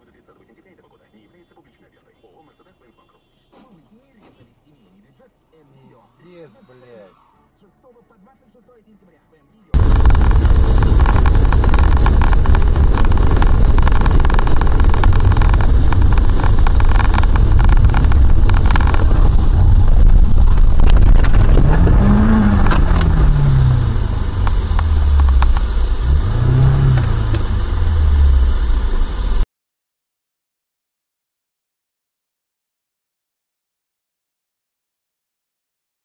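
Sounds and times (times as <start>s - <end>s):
low hum rising and falling: 9.8s - 29.4s
car tyre and engine rumble: 9.8s - 29.5s.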